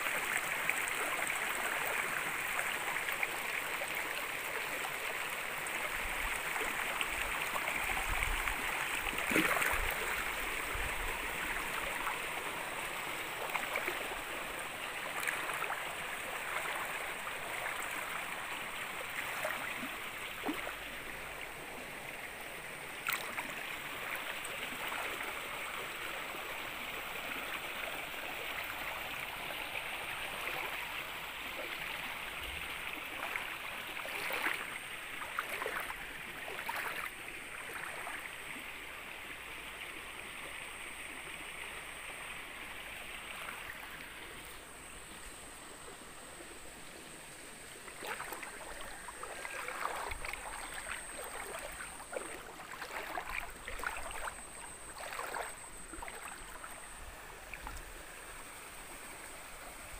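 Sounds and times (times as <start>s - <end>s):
stream flowing over stones: 0.0s - 59.9s
small water splashes: 5.9s - 21.5s, 22.9s - 25.4s, 31.4s - 38.7s, 47.7s - 58.8s.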